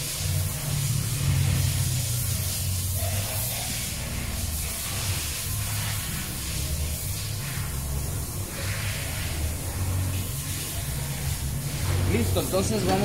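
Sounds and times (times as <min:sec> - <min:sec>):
compressed air hissing: 0:00.0 - 0:13.0.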